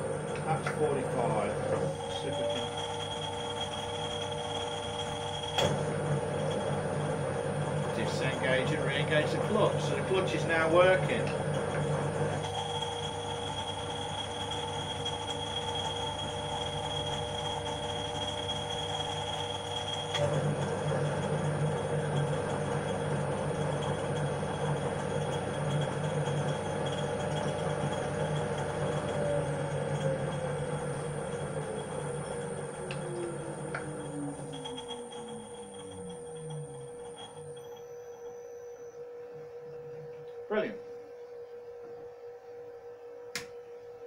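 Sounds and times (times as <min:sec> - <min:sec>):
lathe running: 0:00.0 - 0:41.6.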